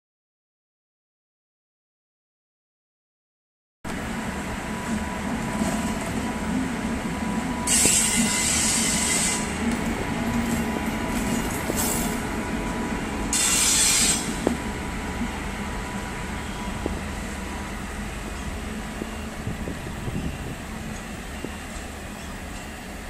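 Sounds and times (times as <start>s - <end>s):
locomotive running noise: 3.9s - 23.0s
locomotive wheels squealing: 7.7s - 9.6s, 13.3s - 14.4s
wheels clacking over rail joints: 7.7s - 15.4s.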